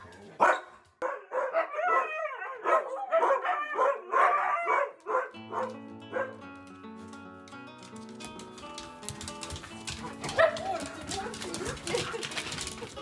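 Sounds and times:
dogs whining and yipping: 1.6 - 5.6, 10.0 - 13.0.

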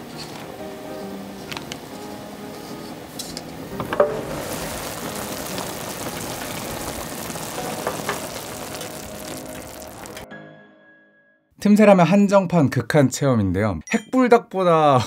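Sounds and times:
broth boiling with bubbling hiss: 0.0 - 10.2.

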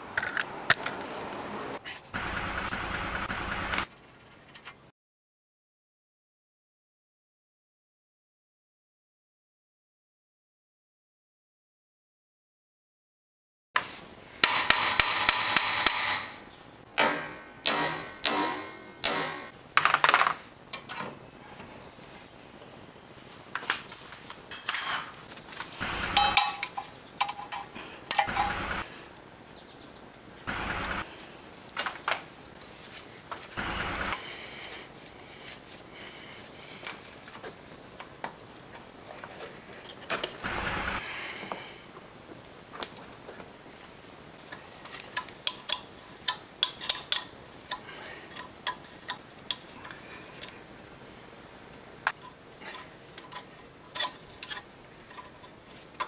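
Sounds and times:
metal tools clinking: 24.5 - 28.6
metallic tool clicks and taps: 45.2 - 49.7.

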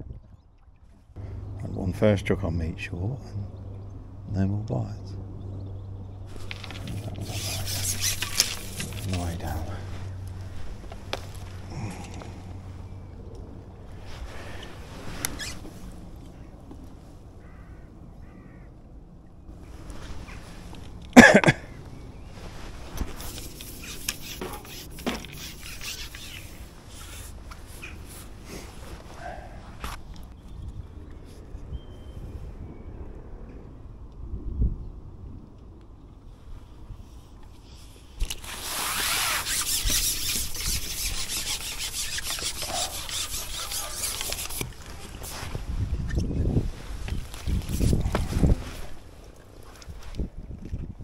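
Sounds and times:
fishing pole rasping rub: 6.5 - 10.0, 23.2 - 28.7, 38.2 - 45.4
man coughing: 21.2 - 21.7.

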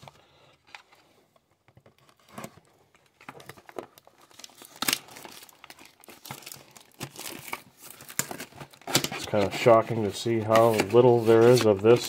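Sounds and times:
cardboard box crinkling and tearing: 1.9 - 12.0.

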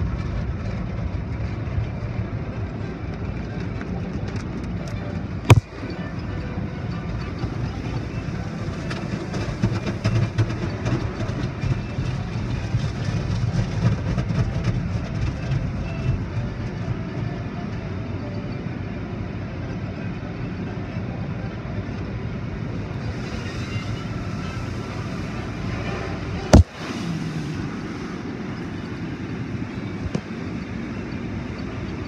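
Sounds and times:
sharp knock: 5.5 - 5.7, 26.5 - 26.8
car wash water spray rushing: 23.1 - 29.3.

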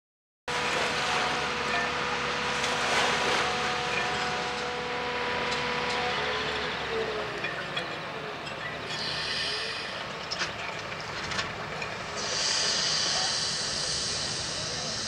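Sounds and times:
boat diesel engines humming: 0.5 - 15.0
water rushing: 0.6 - 5.4.

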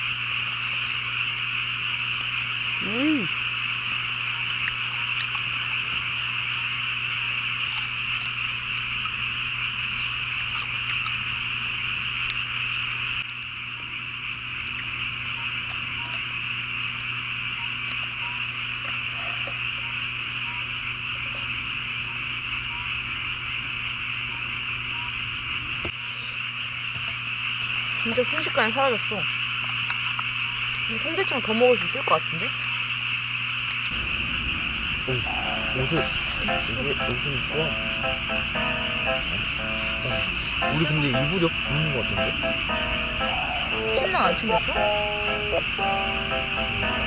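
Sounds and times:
chorus of frogs calling: 33.9 - 47.0.

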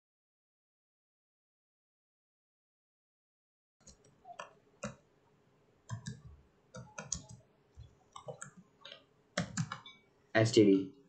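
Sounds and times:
computer keyboard typing: 5.9 - 10.0.

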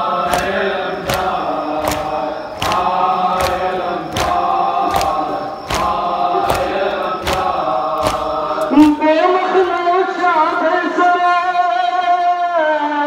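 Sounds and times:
rhythmic chest-beating slaps: 0.0 - 9.2
lead voice singing wavering melody: 0.0 - 9.6
crowd chanting in unison: 0.0 - 11.5.

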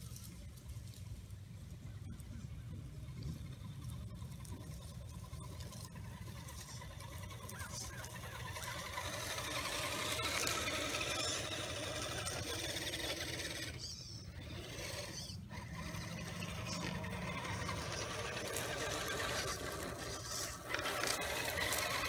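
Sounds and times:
toy truck motor whirring: 3.2 - 22.0.

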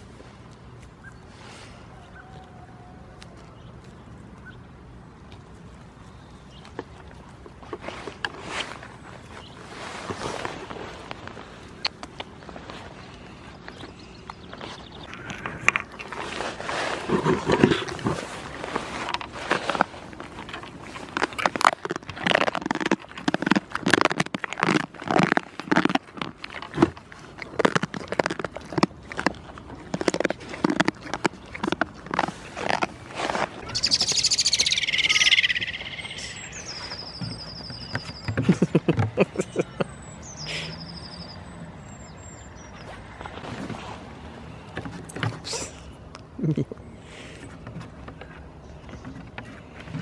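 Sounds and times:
goats nibbling: 0.0 - 40.6, 42.6 - 50.0
high whistled bird notes: 33.6 - 38.3
songbird warbling: 33.6 - 38.4.

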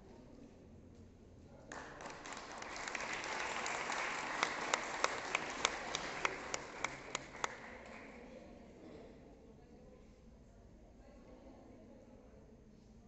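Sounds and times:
audience applause: 1.7 - 8.0
sharp close claps: 1.7 - 8.1.

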